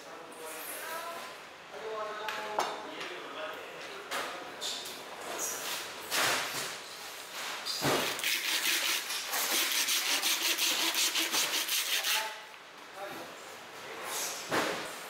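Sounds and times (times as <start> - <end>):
knife sawing through fish: 8.2 - 12.4.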